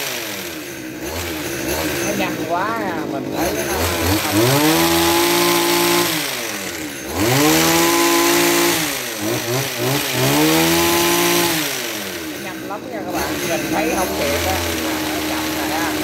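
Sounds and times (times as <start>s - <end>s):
cutter blades running: 0.0s - 16.0s
hedge trimmer engine revving: 0.0s - 16.0s.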